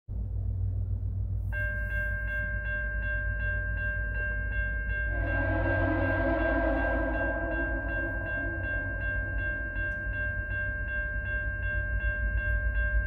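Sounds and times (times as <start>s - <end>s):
bell ringing: 1.6s - 13.0s
diesel train rumble: 4.8s - 13.0s
train horn chord: 5.0s - 10.5s.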